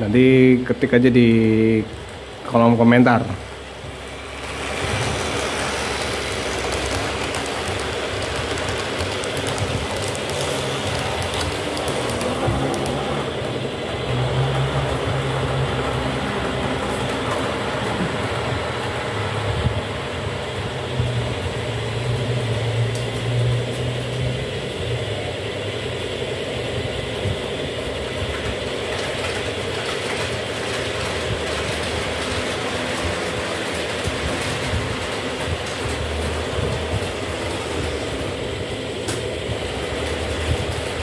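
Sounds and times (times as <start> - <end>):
wheels rolling on track: 0.0 - 41.0
electric motor hum: 3.6 - 18.6.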